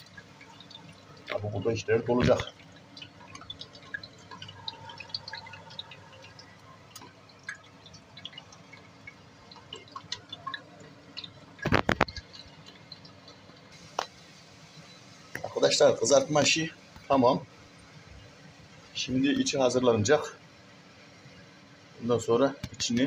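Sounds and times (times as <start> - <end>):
hot oil crackling and spitting: 0.0 - 21.7.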